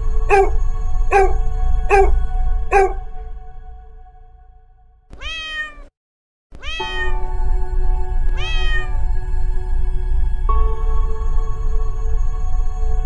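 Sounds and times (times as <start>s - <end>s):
soft background music: 0.0s - 4.7s, 6.7s - 13.0s
cat meowing: 5.1s - 5.9s, 6.6s - 7.3s, 8.4s - 9.0s.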